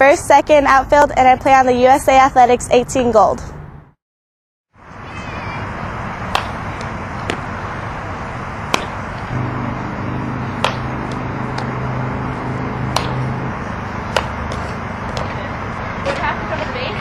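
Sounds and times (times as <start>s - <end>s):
outdoor noise: 0.0s - 4.0s, 4.7s - 17.0s
low hum: 6.0s - 17.0s
softball striking bat or glove: 6.3s - 7.5s, 8.7s - 15.4s.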